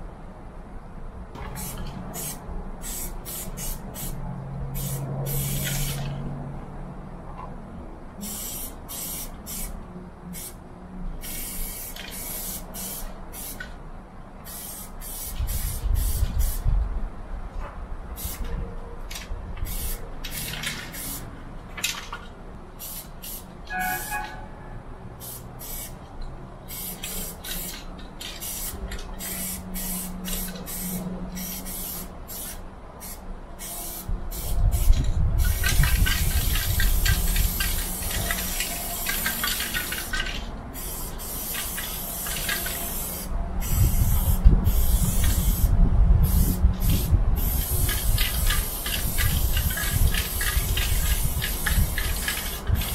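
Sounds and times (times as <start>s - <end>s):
spray paint can hissing: 1.4s - 4.2s, 4.8s - 6.2s, 8.2s - 10.6s, 11.2s - 13.7s, 14.4s - 16.7s, 18.2s - 18.5s, 19.6s - 21.3s, 22.8s - 24.3s, 25.2s - 26.0s, 26.7s - 52.9s.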